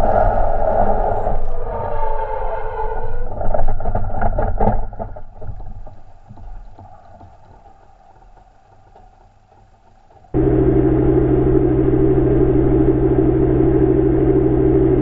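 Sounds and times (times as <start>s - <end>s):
racing car engine crackling: 9.8s - 15.0s.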